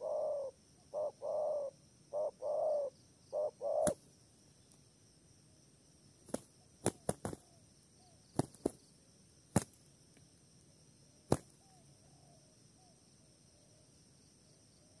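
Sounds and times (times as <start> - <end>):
dove wings clapping: 6.3 - 7.5, 8.3 - 8.8, 9.5 - 9.8, 11.3 - 11.6.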